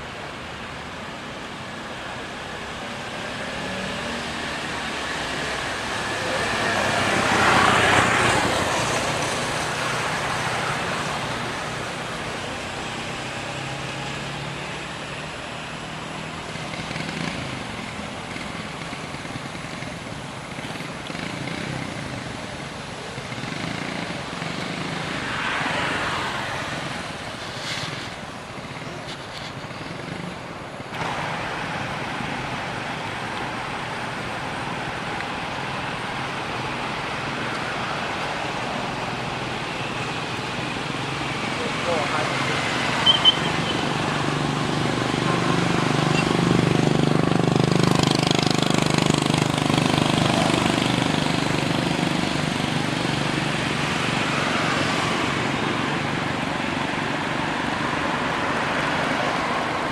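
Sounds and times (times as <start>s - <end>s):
road traffic noise: 0.0s - 59.9s.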